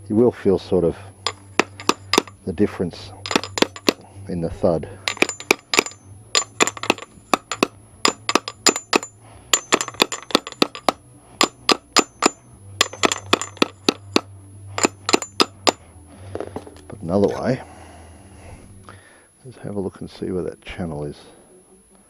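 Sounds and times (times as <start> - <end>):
hammer tapping on metal tube: 1.3 - 2.4, 3.2 - 4.1, 5.1 - 15.8.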